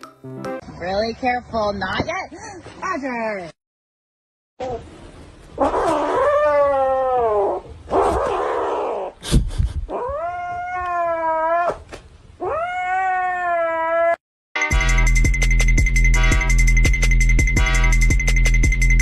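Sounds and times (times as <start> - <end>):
kitten yowling: 5.6 - 9.1, 9.9 - 11.8, 12.4 - 14.2.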